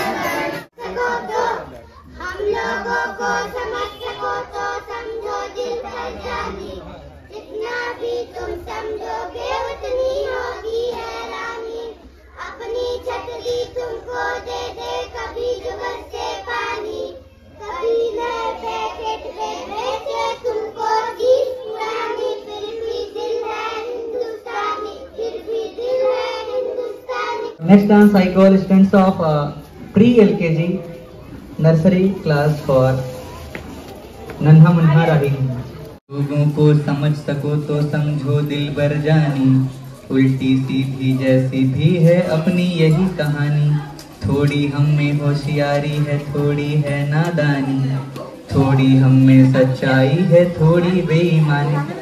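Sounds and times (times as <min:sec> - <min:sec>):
children singing: 0:00.0 - 0:27.6.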